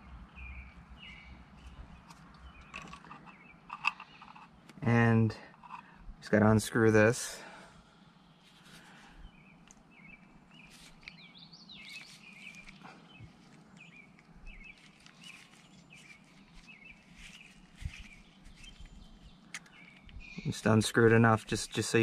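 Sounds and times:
small birds chirping: 0:00.0 - 0:22.0
faint handling clicks: 0:17.3 - 0:20.3.

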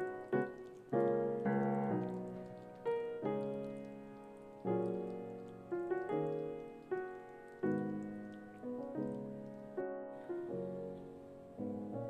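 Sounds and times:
light piano-like keyboard tune: 0:00.0 - 0:12.0.

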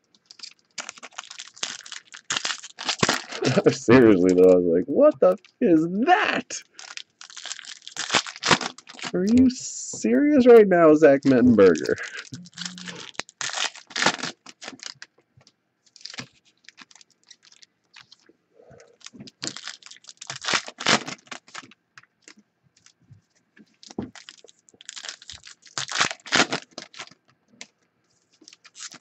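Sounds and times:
foil wrapper tearing and crinkling: 0:00.2 - 0:04.4, 0:06.6 - 0:09.4, 0:11.4 - 0:15.1, 0:15.9 - 0:18.3, 0:19.0 - 0:23.0, 0:23.8 - 0:27.2, 0:28.3 - 0:29.0.

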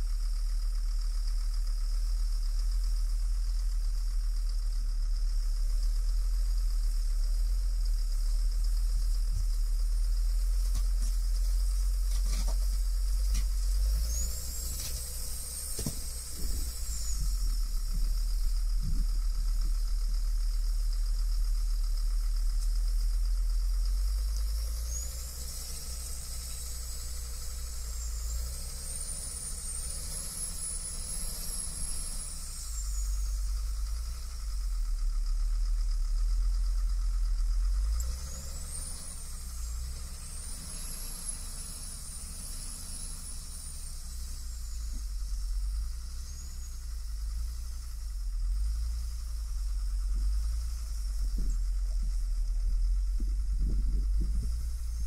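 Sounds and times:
heavy diesel engine rumbling: 0:00.0 - 0:55.0
high wavering whine: 0:05.4 - 0:34.8, 0:37.9 - 0:55.0.

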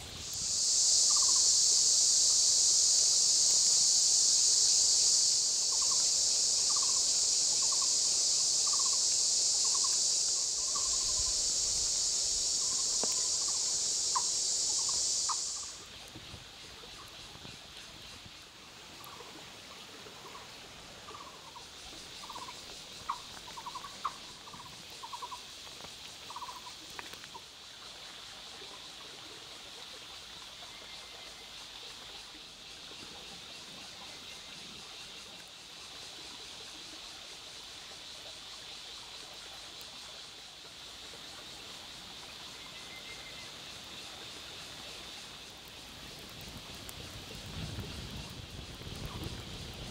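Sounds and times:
high insect drone: 0:00.0 - 0:49.9
trilled bird calls: 0:08.6 - 0:15.8.

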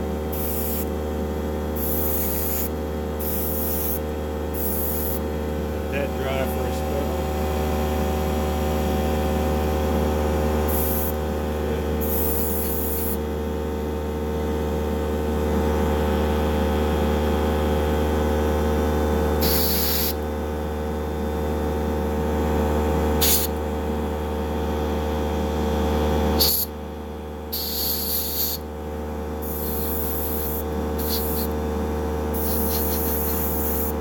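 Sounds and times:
airbrush spraying hiss: 0:00.3 - 0:00.9, 0:01.8 - 0:04.0, 0:04.6 - 0:05.2, 0:10.7 - 0:11.2, 0:12.0 - 0:13.2, 0:19.4 - 0:20.2, 0:26.4 - 0:26.7, 0:27.5 - 0:28.6, 0:29.4 - 0:31.5, 0:32.4 - 0:34.0.

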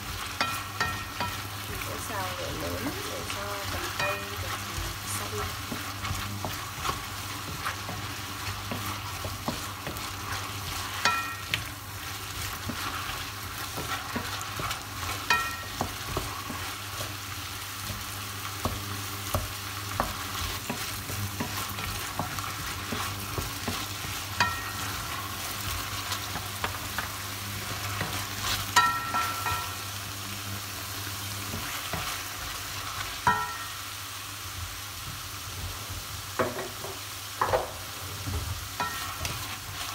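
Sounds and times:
wooden spatula scraping a pan: 0:00.0 - 0:29.8, 0:31.0 - 0:33.8, 0:38.0 - 0:39.9
vegetables sizzling in a frying pan: 0:00.0 - 0:39.9
spatula knocking ringing pan: 0:00.4 - 0:01.5, 0:10.9 - 0:11.7, 0:15.2 - 0:16.4, 0:21.4 - 0:25.2, 0:28.7 - 0:29.8, 0:33.2 - 0:33.8, 0:38.8 - 0:39.3.

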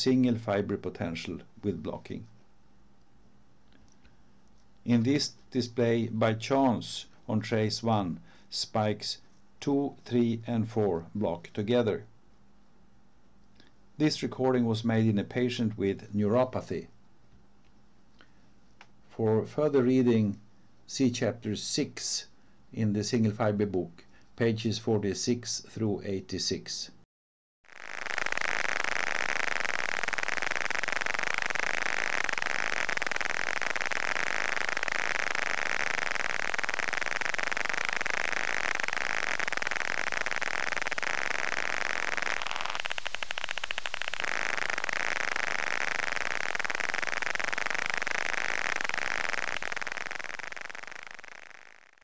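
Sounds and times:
hissing static: 0:00.0 - 0:02.4, 0:04.8 - 0:11.6, 0:19.1 - 0:22.3, 0:27.7 - 0:52.0
fast even clicks: 0:27.8 - 0:51.9.

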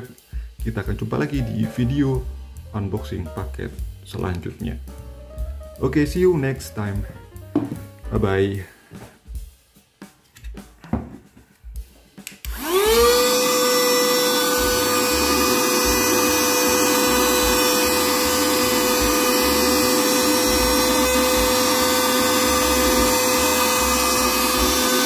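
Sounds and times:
handheld vacuum motor whine: 0:12.4 - 0:25.0.

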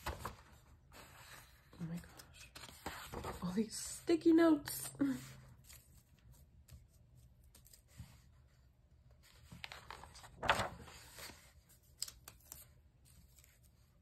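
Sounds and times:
paper rustling: 0:00.0 - 0:14.0
page swishing: 0:09.4 - 0:11.5.

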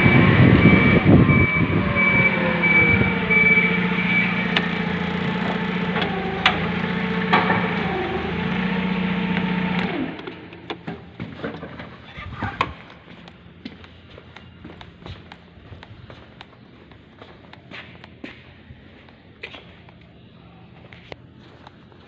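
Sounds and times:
reversing alarm beeping: 0:00.0 - 0:06.7
truck diesel engine running: 0:00.0 - 0:11.4.

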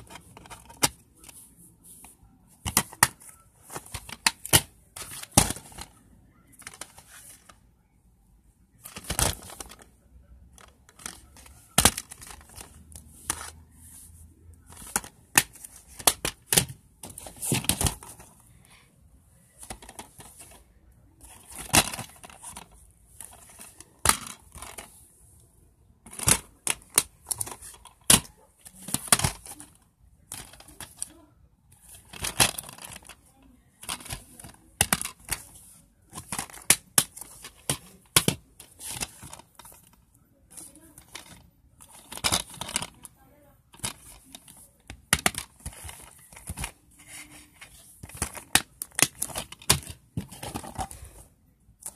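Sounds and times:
plastic cases clacking and rustling: 0:00.0 - 0:07.6, 0:08.7 - 0:18.8, 0:19.4 - 0:25.0, 0:26.0 - 0:51.9.

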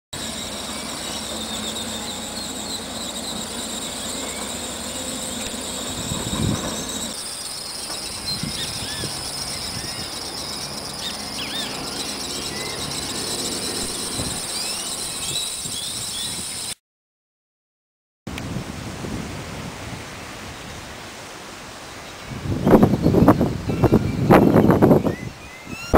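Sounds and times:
bird chirps: 0:00.2 - 0:16.8
high insect buzz: 0:00.2 - 0:16.8.

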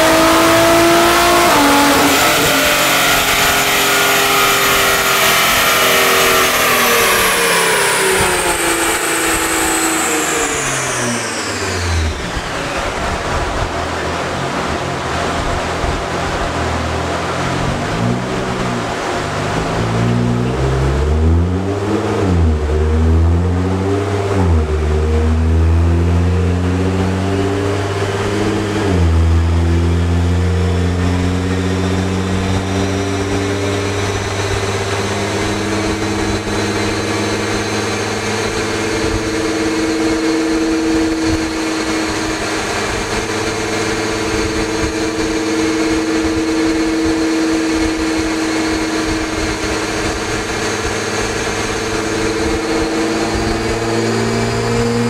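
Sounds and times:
car engine revving under load: 0:00.0 - 0:55.0
thin high whine: 0:30.6 - 0:55.0.

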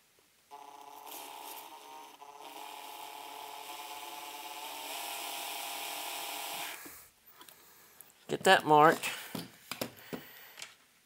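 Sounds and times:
electric drill running: 0:00.5 - 0:07.0.

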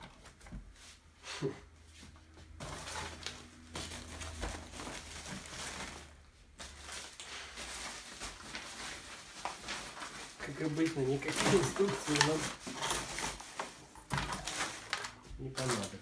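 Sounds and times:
rustling plastic and paper packaging: 0:02.4 - 0:16.0.

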